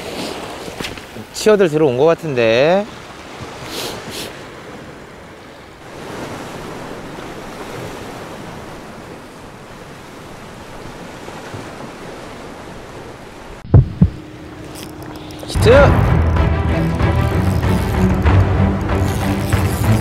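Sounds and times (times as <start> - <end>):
surf washing against rocks: 0.0 - 13.6, 14.4 - 15.9
wind: 0.0 - 20.0.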